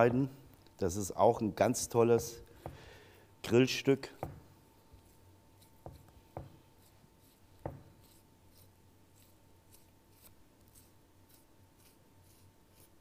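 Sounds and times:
soft knocks: 4.2 - 4.5, 5.8 - 6.6, 7.6 - 7.9
knife slicing raw meat: 5.0 - 13.0.

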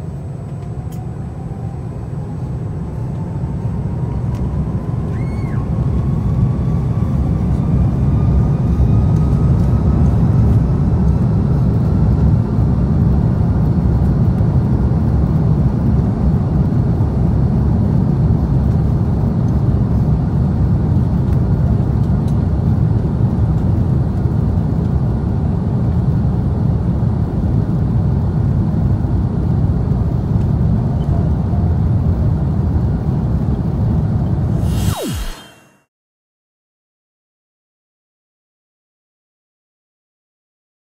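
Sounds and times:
faint rising whine: 0.0 - 11.7, 34.2 - 35.9
wheels rumbling on runway: 0.0 - 35.5
jet engines deep rumble: 0.0 - 35.9.

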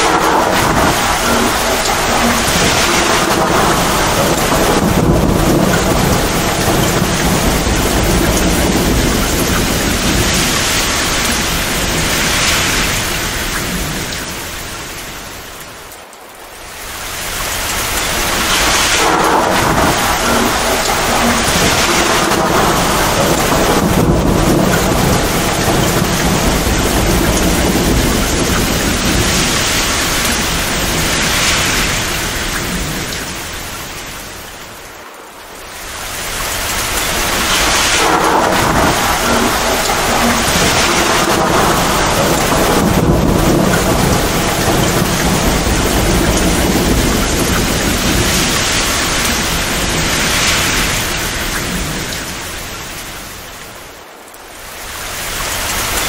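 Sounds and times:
rumbling thunder: 0.0 - 15.4, 17.0 - 54.0
heavy rain pouring: 0.0 - 56.0.

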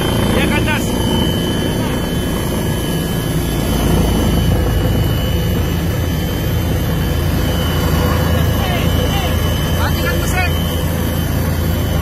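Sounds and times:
helicopter rotor and engine drone: 0.0 - 12.0.

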